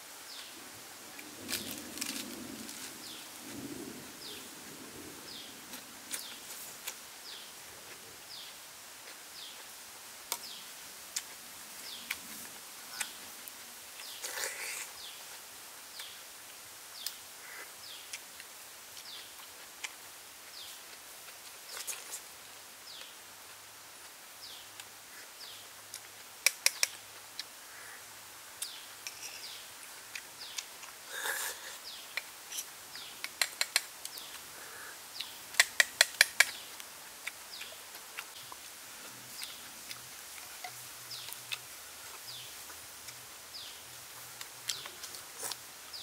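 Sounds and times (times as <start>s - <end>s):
snail shells clicking: 26.4s - 27.0s, 32.1s - 34.4s, 35.2s - 36.6s.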